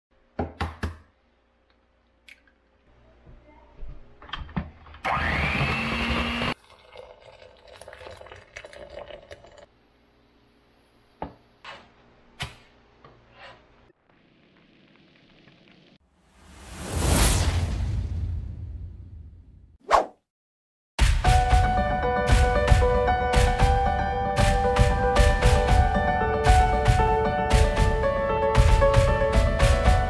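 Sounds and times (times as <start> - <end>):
electric mixer whirring: 5.1 - 6.6
water pouring into pot: 6.6 - 9.7.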